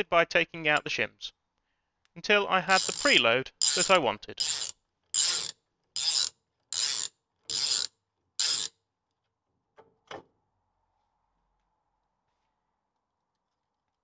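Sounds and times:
socket ratchet wrench clicking: 2.7s - 8.7s.

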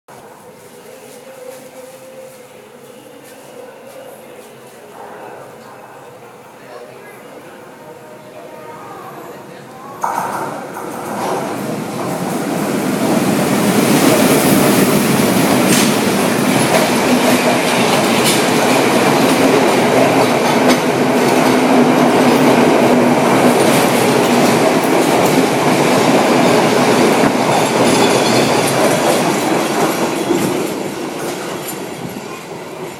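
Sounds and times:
diesel locomotive passing: 10.4s - 32.9s
train wheels clacking over joints: 15.6s - 21.7s, 26.4s - 32.1s.

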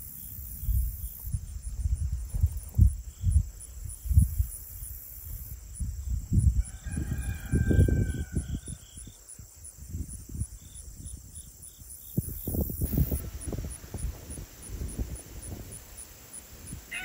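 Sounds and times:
insect chirps: 0.0s - 17.0s
rooster crowing: 6.6s - 8.9s.

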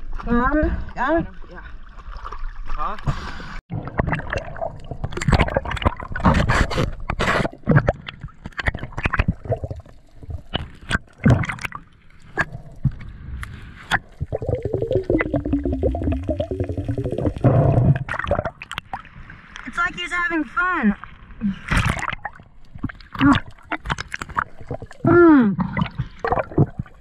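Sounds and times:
underwater gurgling and bubbling: 3.7s - 19.2s, 21.8s - 27.0s.

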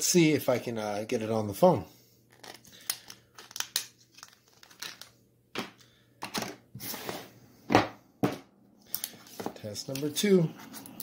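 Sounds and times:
hands handling plastic and cardboard: 2.3s - 7.0s.

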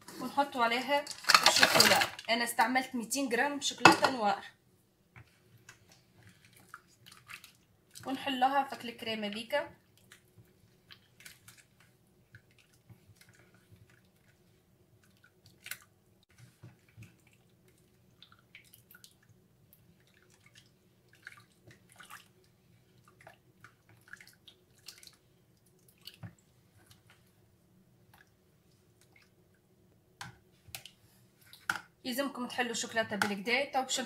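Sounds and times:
spatula stirring chocolate: 5.1s - 29.4s.

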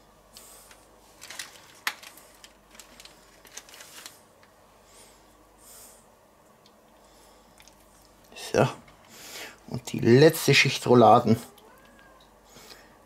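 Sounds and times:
food rustling and squishing: 0.4s - 4.6s.

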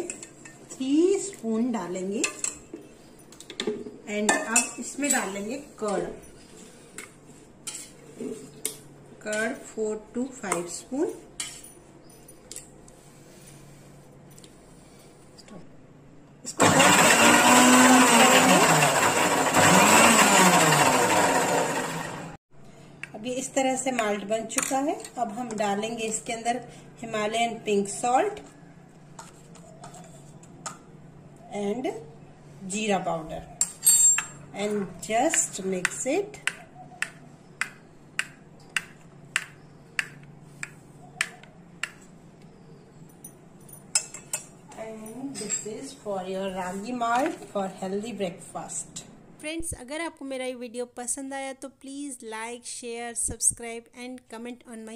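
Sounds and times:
mixer grinder motor whirring: 16.5s - 22.4s.

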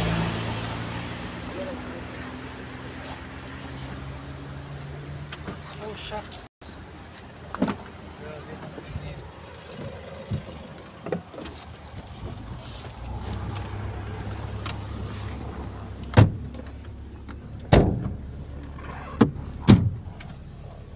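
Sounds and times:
vehicle engine idling: 0.0s - 20.9s
heavy thumps inside vehicle: 16.0s - 18.3s, 19.2s - 20.4s.

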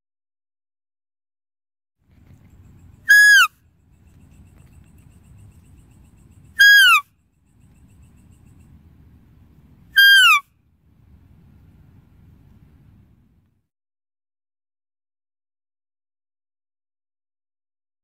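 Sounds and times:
deer call whistle-like note: 3.1s - 3.5s, 6.6s - 7.0s, 10.0s - 10.4s
faint low rumble: 10.6s - 13.6s.

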